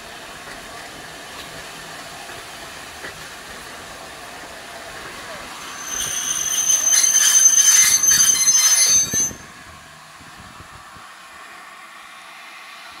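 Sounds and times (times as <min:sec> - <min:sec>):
train wheels squealing: 0:05.6 - 0:09.6.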